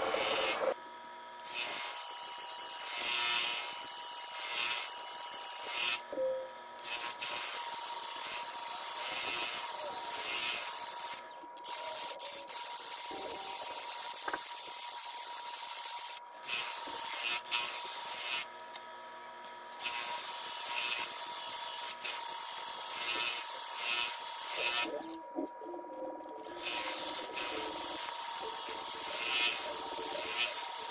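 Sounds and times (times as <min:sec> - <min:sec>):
drill motor whine: 0:00.0 - 0:25.1, 0:26.4 - 0:30.9
sanding pad hissing on wood: 0:26.6 - 0:30.9.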